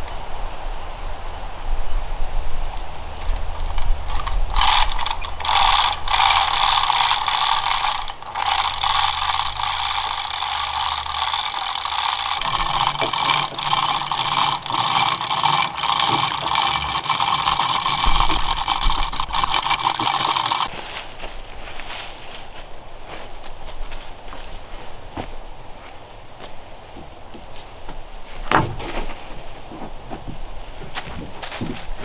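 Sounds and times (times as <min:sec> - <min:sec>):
rope rattling through pulley: 0:02.7 - 0:20.7.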